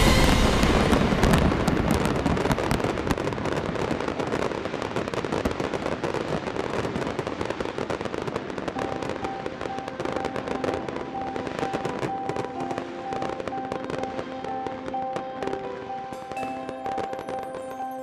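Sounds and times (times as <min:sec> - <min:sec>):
fireworks crackling and popping: 0:00.0 - 0:18.0.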